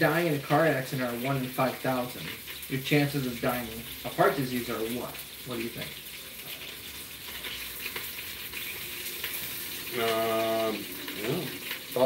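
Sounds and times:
food sizzling in a pan: 0:00.0 - 0:12.0
person humming hmm: 0:10.1 - 0:11.6.

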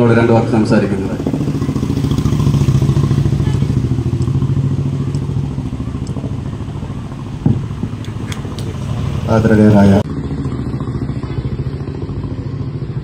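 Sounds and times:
low pulsing engine drone: 0:00.0 - 0:13.0
thump: 0:07.4 - 0:07.7.

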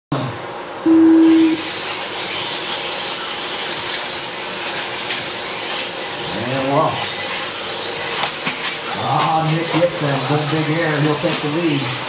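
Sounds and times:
electronic beep: 0:00.9 - 0:01.6.

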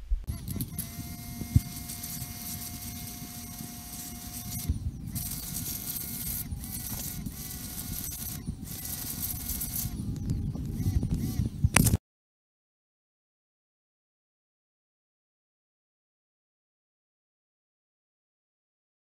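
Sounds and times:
pressure washer motor whine: 0:00.3 - 0:11.8.

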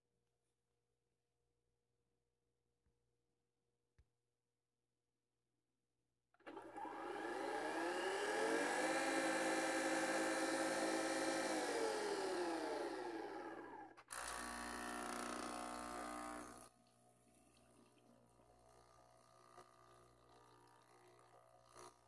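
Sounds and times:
coffee machine motor whining: 0:06.4 - 0:16.6
machine buzzing hum: 0:06.5 - 0:16.7.

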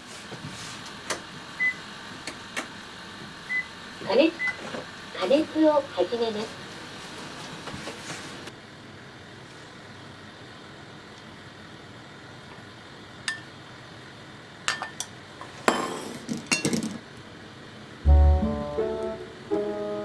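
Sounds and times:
music: 0:18.0 - 0:20.0.

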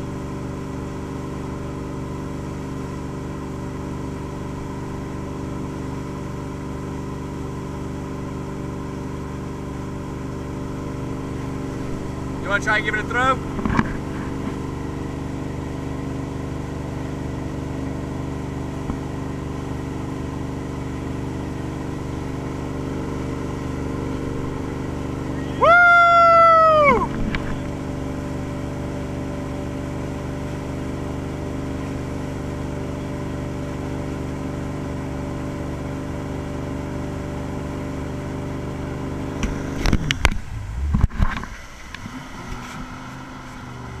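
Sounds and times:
boat engine running: 0:00.0 - 0:44.0
water rushing: 0:08.4 - 0:16.0, 0:21.0 - 0:32.2, 0:39.2 - 0:44.0
knocks and buffets: 0:10.7 - 0:14.7, 0:24.1 - 0:28.6, 0:39.3 - 0:44.0
loud high whoop: 0:25.4 - 0:27.2.

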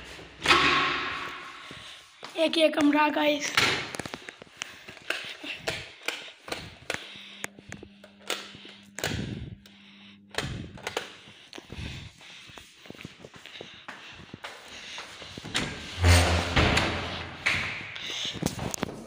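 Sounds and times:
faint steady hum: 0:04.1 - 0:15.8
footsteps on hard floor: 0:10.4 - 0:19.0.

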